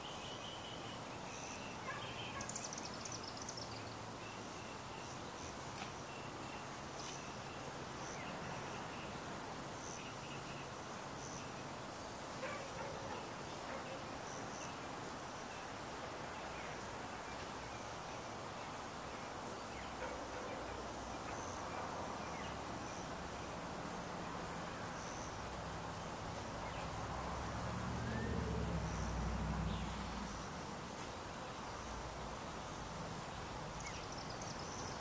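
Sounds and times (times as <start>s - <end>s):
steady background hiss: 0.0s - 35.0s.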